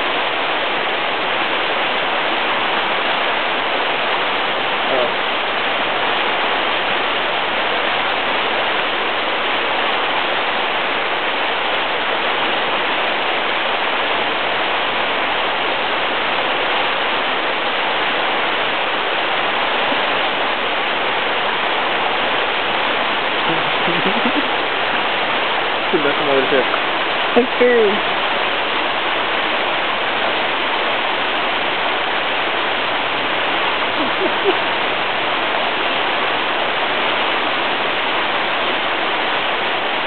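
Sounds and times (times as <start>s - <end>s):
flowing water: 0.0s - 40.0s.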